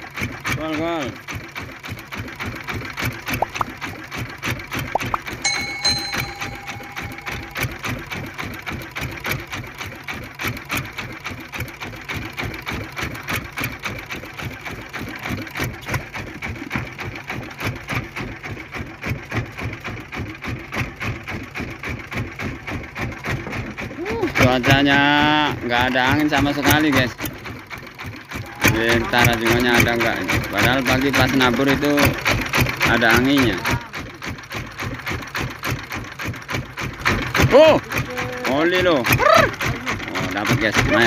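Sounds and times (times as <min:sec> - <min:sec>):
boat engine running: 0:00.0 - 0:41.0
brief steady tone: 0:05.0 - 0:07.9.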